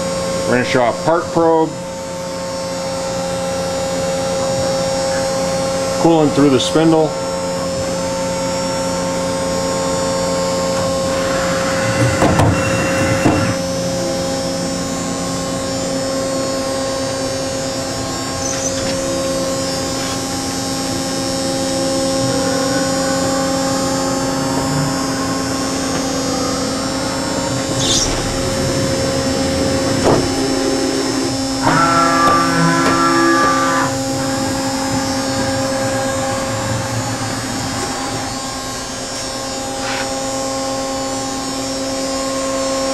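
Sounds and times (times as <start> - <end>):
high machine whine: 0.0 - 42.9
machining center humming: 0.0 - 42.9
machine knocks: 27.7 - 33.2.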